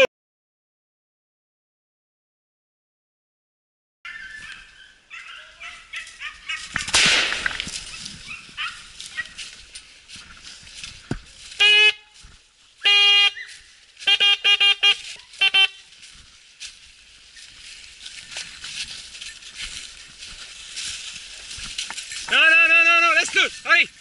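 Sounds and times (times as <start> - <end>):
shotgun shot: 6.9 - 7.8
hunting horn blasts: 11.5 - 12.2, 12.8 - 15.9.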